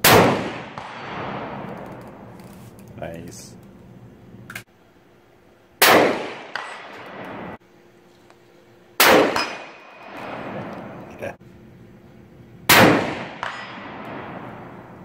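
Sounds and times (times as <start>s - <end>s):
rifle shots with echo: 0.0s - 1.8s, 5.8s - 7.6s, 9.0s - 11.0s, 12.7s - 14.8s.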